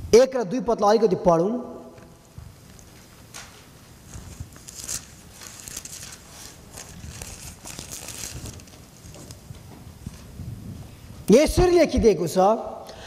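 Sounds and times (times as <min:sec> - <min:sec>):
thin pages rustling: 0:02.4 - 0:10.4.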